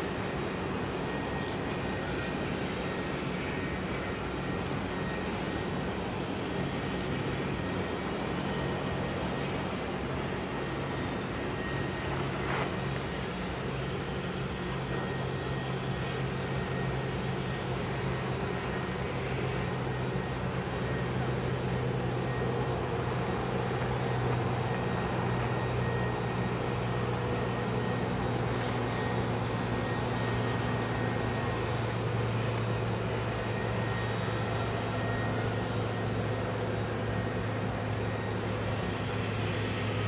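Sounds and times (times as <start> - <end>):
distant machinery engine drone: 0.0 - 40.0.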